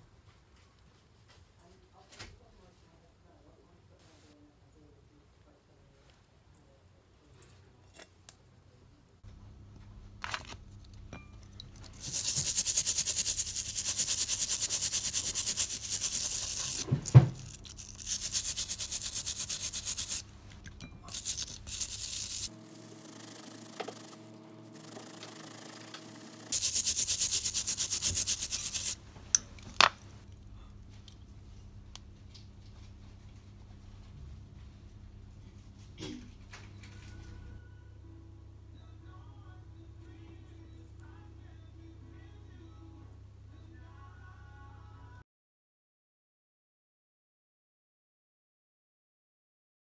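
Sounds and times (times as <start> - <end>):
brush scrubbing metal: 11.9 - 20.2, 21.1 - 29.0.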